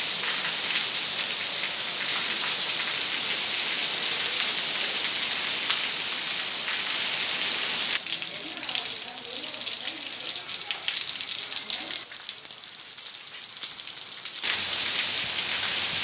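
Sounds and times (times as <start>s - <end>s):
heavy rain pouring: 0.0s - 16.0s
raindrops ticking: 8.0s - 15.8s.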